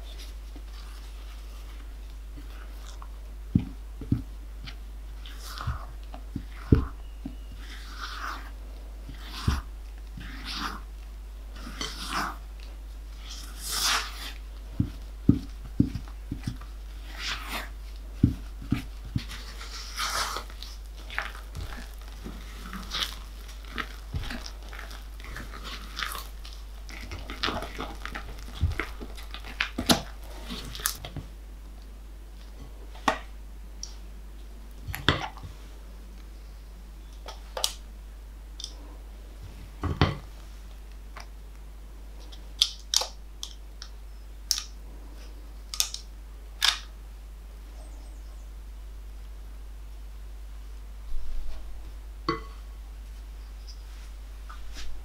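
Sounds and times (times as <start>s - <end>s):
spatula scraping batter: 0.0s - 31.1s.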